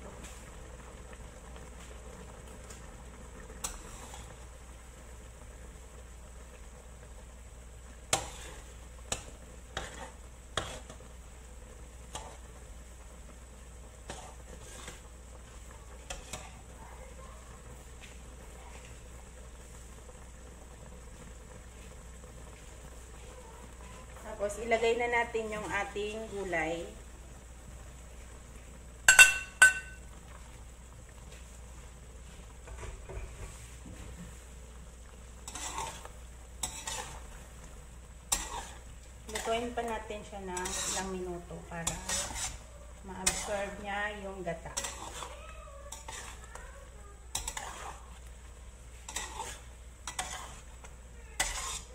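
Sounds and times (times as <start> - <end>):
faint sizzle: 0.0 - 51.9
utensils stirring curry in a pan: 0.0 - 51.9
metal spatula scraping a wok: 3.6 - 4.4, 8.1 - 11.1, 12.1 - 12.5, 14.0 - 15.2, 16.0 - 16.7, 35.4 - 37.5, 38.2 - 46.6, 47.3 - 48.3, 48.9 - 51.9.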